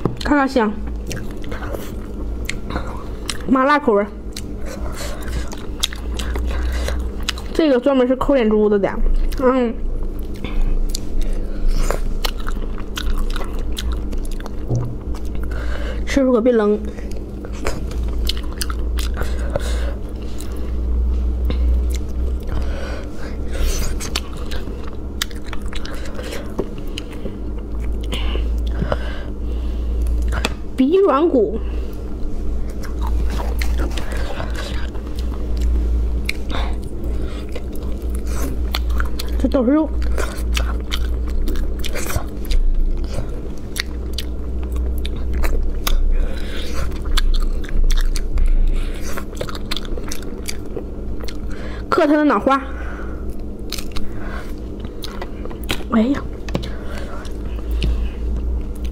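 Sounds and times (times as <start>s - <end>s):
low steady hum: 0.0s - 58.9s
person chewing meat: 0.9s - 3.5s, 4.2s - 7.6s, 9.1s - 16.1s, 16.8s - 30.7s, 31.7s - 51.9s, 52.8s - 58.9s
meat pulled apart and chewed: 53.2s - 55.9s.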